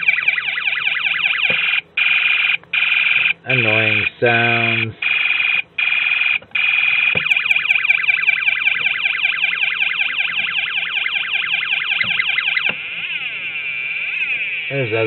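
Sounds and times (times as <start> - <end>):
electronic siren wailing: 0.0 - 15.0.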